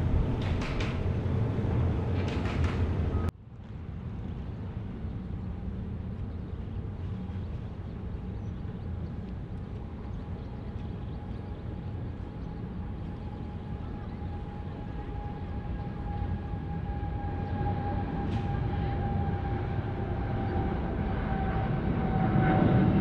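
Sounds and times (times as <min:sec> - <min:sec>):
jet engines rumbling: 0:00.0 - 0:03.3, 0:06.7 - 0:23.0
jet roar: 0:00.0 - 0:03.3, 0:13.3 - 0:23.0.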